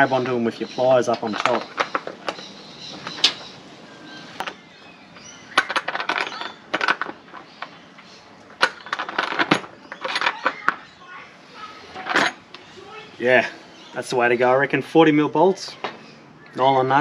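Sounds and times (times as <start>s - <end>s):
tools clinking on steel bolts: 1.0s - 3.4s, 4.4s - 10.8s.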